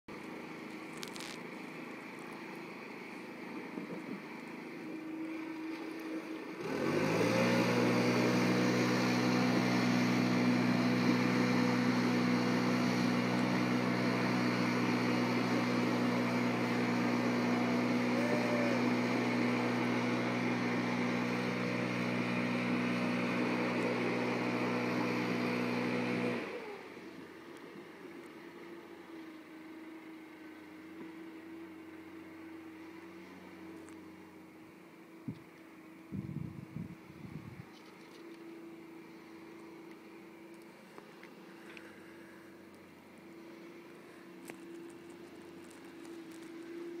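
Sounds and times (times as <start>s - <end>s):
leaf blower engine revving: 3.8s - 27.2s.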